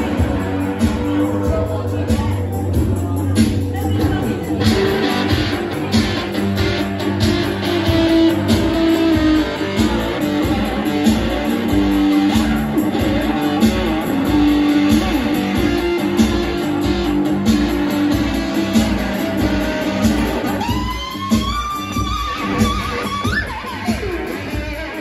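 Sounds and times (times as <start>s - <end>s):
electric guitar playing blues: 0.0s - 25.0s
steady low beat: 0.0s - 25.0s.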